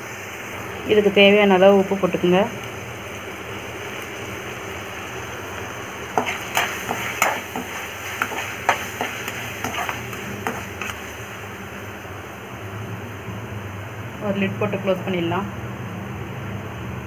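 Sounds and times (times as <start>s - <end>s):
onions sizzling in oil: 0.0s - 15.1s
spatula scraping a pan: 6.2s - 11.1s.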